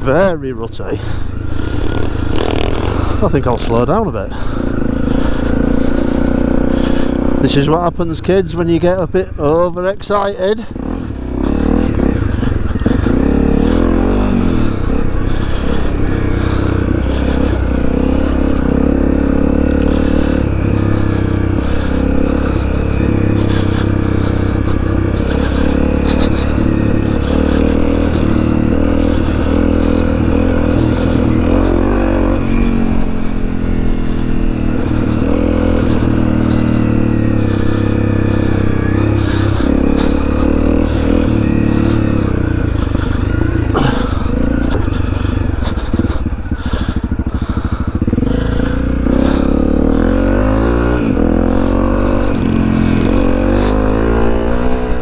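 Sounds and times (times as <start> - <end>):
motorbike engine revving: 0.0 - 55.0.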